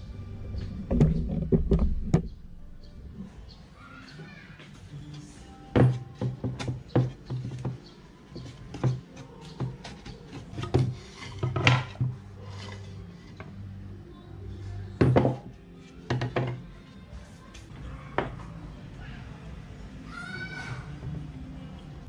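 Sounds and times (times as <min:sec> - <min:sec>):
wooden panels rubbing and sliding: 0:09.6 - 0:13.6.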